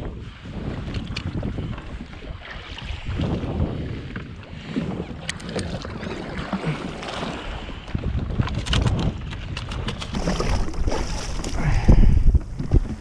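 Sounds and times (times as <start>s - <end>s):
sea water: 0.0s - 13.0s
wind buffeting microphone: 0.0s - 13.0s.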